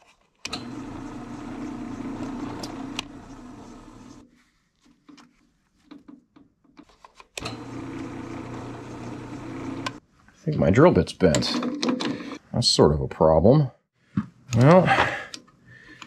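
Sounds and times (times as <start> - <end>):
drill press drilling steel: 0.5 - 4.2, 7.4 - 10.0.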